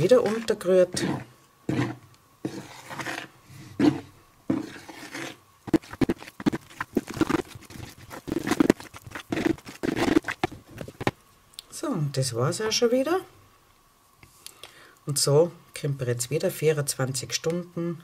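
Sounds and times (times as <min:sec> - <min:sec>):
metal spoon scraping batter in bowl: 0:00.0 - 0:10.5.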